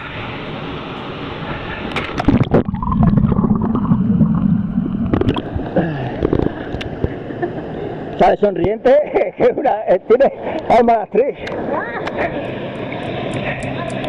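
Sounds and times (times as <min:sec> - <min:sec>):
water churning and gurgling: 0:00.0 - 0:08.6.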